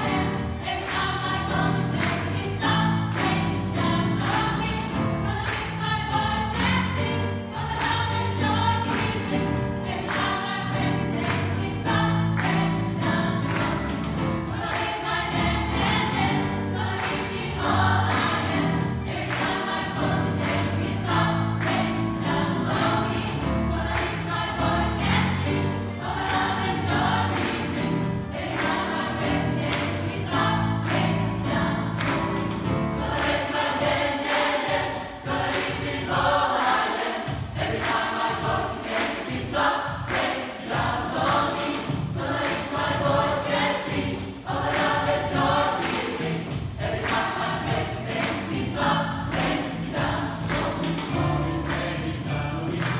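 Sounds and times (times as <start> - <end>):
choir singing in harmony: 0.0 - 52.9
live band accompaniment: 25.6 - 36.4, 37.0 - 52.9.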